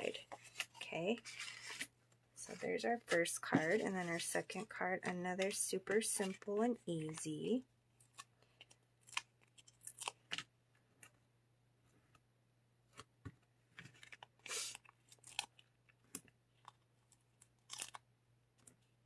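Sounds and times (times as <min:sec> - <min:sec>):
paper rustling: 0:00.0 - 0:10.4
paper pieces tapping and crinkling: 0:13.2 - 0:18.0.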